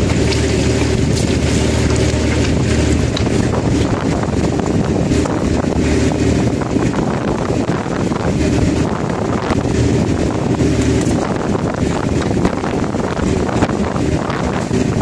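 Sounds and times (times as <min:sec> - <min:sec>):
plastic tubes clattering: 0:00.0 - 0:03.9
boat engine running: 0:00.0 - 0:15.0
wind buffeting microphone: 0:00.0 - 0:15.0.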